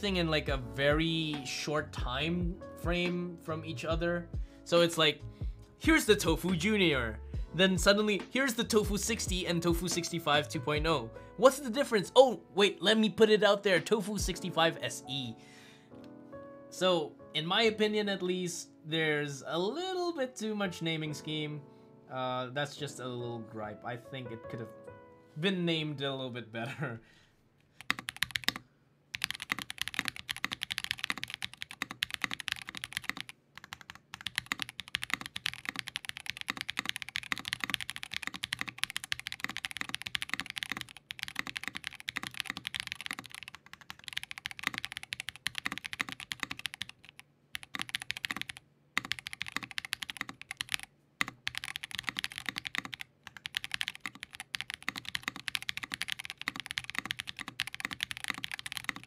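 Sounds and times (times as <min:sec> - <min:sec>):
mechanical keyboard typing: 0:27.8 - 0:59.0.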